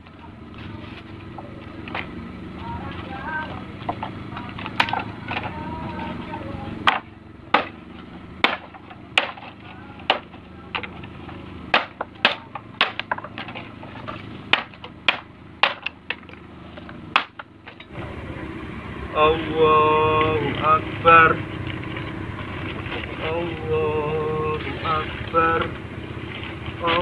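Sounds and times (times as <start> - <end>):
machete chopping dry wood: 6.9 - 7.8, 8.4 - 10.3, 11.7 - 13.6, 14.5 - 16.2, 17.1 - 17.5.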